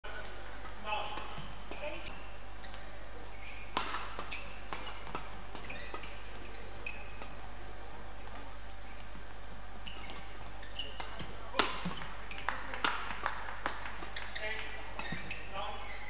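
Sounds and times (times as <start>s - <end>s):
shoes squeaking on court: 0.6s - 7.5s, 8.2s - 13.1s, 13.8s - 16.0s
racket hitting shuttlecock: 3.6s - 6.2s, 10.0s - 14.4s.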